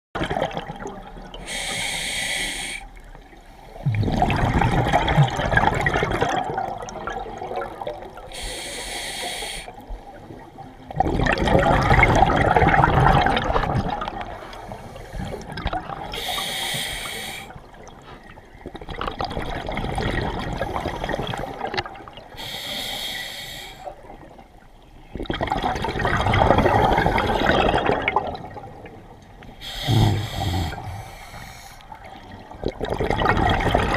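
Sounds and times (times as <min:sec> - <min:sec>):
exhaled bubbles rushing: 0:00.2 - 0:01.4, 0:03.8 - 0:08.2, 0:10.3 - 0:14.5, 0:18.6 - 0:22.3, 0:25.1 - 0:29.2, 0:31.9 - 0:33.9
diver inhaling through regulator: 0:01.4 - 0:02.9, 0:08.3 - 0:09.8, 0:16.2 - 0:17.6, 0:22.4 - 0:23.9, 0:29.6 - 0:31.9.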